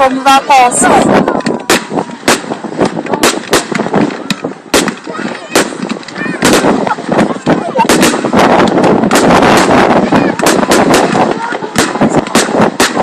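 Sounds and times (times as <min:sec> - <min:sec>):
fireworks bangs: 0:00.7 - 0:13.0.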